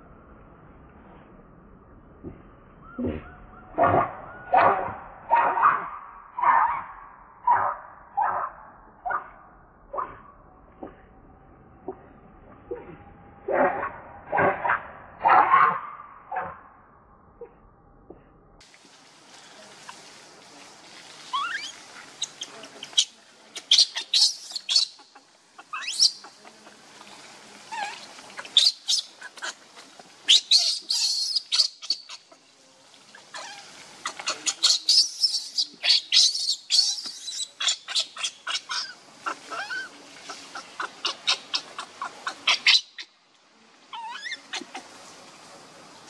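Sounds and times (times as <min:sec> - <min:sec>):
baby monkey screaming: 0:21.3 - 0:26.3, 0:27.7 - 0:29.6, 0:30.3 - 0:32.3, 0:33.3 - 0:39.9, 0:40.5 - 0:43.1, 0:43.9 - 0:44.8.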